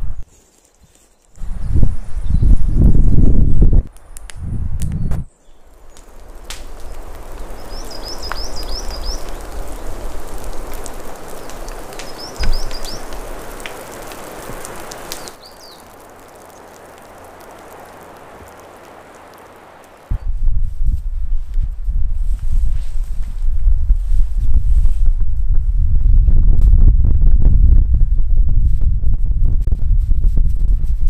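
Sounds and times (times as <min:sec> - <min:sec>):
rain falling in forest: 0:05.3 - 0:20.2
bird chirping: 0:06.8 - 0:09.9, 0:11.4 - 0:13.2, 0:15.0 - 0:16.8.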